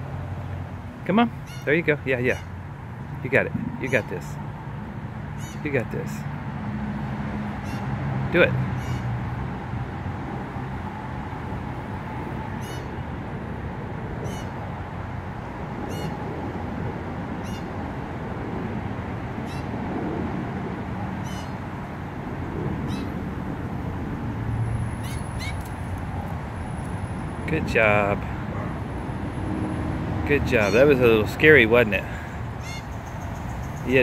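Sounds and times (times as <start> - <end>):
steady background hum: 0.9 - 6.3
young bird high calls: 1.4 - 1.7, 3.7 - 4.2, 5.4 - 5.7, 14.2 - 14.6, 17.4 - 17.7, 19.4 - 19.7, 21.2 - 21.6, 22.9 - 23.2, 25.0 - 25.7, 32.6 - 33.9.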